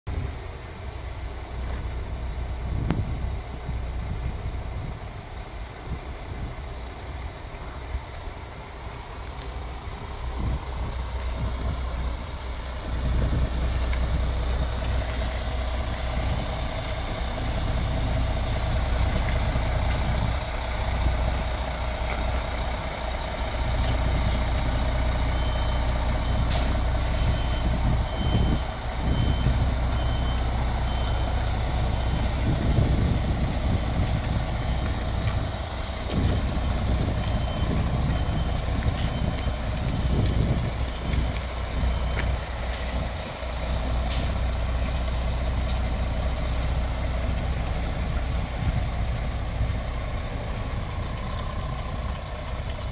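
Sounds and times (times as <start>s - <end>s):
diesel lorry engine running: 0.0s - 52.9s
reversing alarm beeps: 25.2s - 32.4s, 37.1s - 39.6s, 40.9s - 42.5s.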